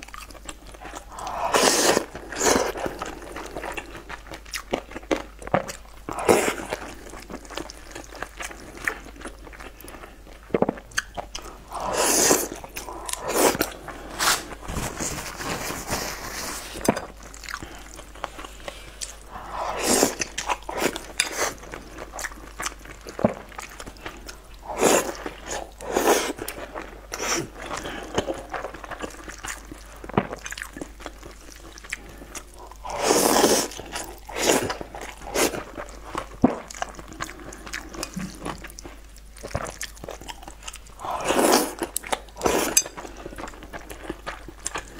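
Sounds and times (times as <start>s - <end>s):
wet chewing and mouth clicks: 0.0s - 14.7s, 19.9s - 44.9s
slurping mouthfuls: 1.0s - 3.0s, 11.7s - 16.8s.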